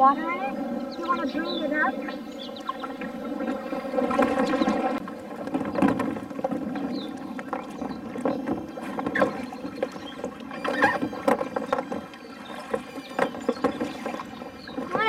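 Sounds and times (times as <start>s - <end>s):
plastic kayak hulls knocking: 0.8s - 15.0s.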